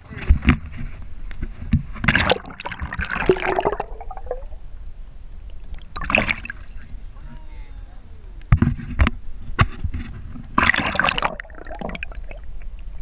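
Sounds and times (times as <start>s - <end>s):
underwater gurgling and splashing: 2.0s - 4.8s, 5.5s - 7.2s, 10.0s - 13.0s.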